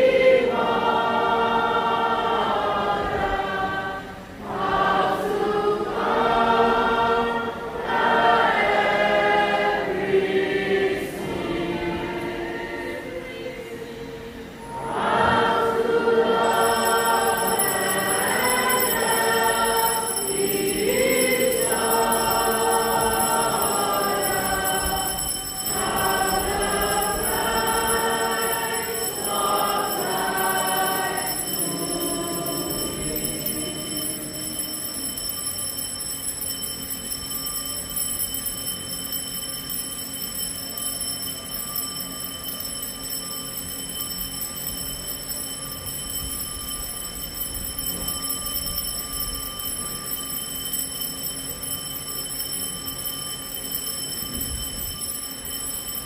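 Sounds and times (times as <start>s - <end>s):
voices singing a hymn: 0.0s - 35.6s.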